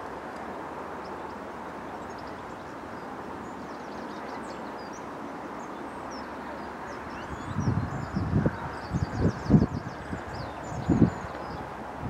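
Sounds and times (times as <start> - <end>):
small birds chirping: 1.0 - 11.8.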